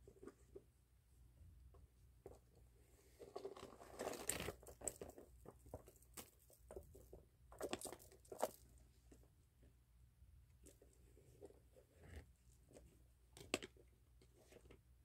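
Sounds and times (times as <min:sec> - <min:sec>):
leather rustling and clicks: 0:03.4 - 0:06.6.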